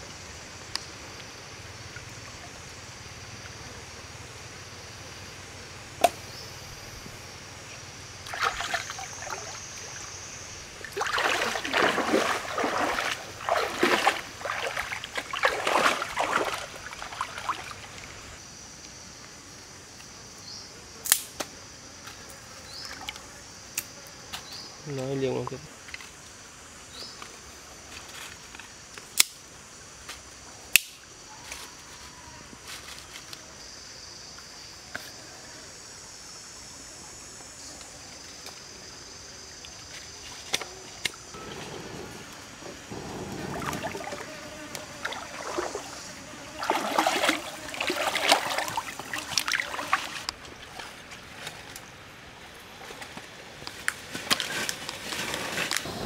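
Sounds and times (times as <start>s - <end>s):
insects buzzing: 0.0s - 56.0s
stream trickling: 8.0s - 18.4s, 41.1s - 53.8s
rustling and crackling: 53.1s - 56.0s.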